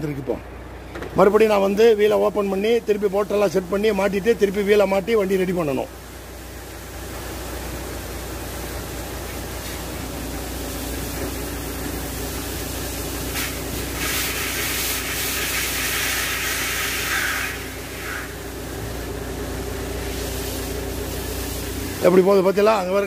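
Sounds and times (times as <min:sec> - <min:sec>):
truck engine hum: 0:00.0 - 0:23.0
compressed air hissing: 0:09.3 - 0:18.8, 0:19.9 - 0:22.1.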